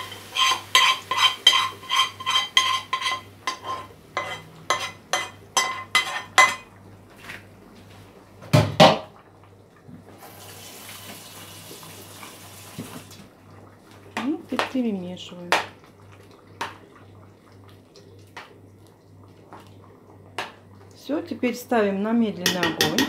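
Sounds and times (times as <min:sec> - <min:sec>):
metal utensil scraping frying pan: 0:00.0 - 0:06.6.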